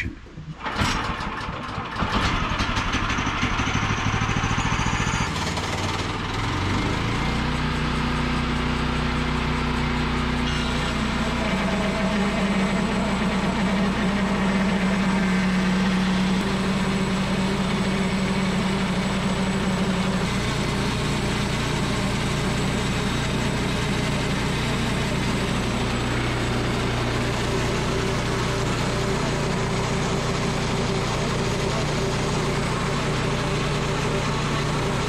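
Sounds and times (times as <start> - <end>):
band sawmill engine running: 0.0 - 35.0.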